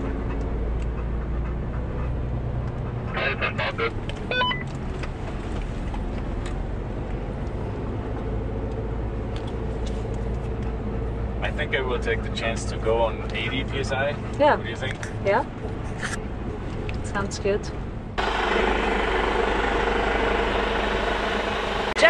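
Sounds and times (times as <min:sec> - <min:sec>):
engine and road drone: 0:00.0 - 0:22.0.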